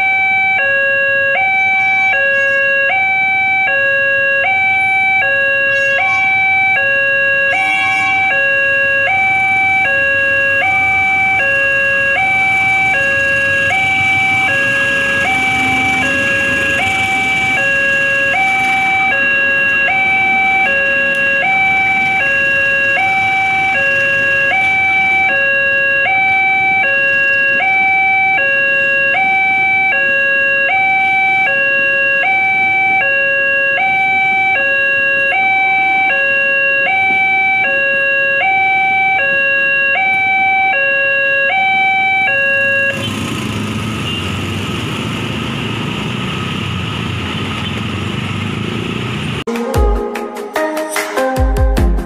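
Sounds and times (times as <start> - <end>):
level crossing two-tone alarm: 0.0 - 43.1
passenger train passing: 5.6 - 27.8, 42.9 - 49.5.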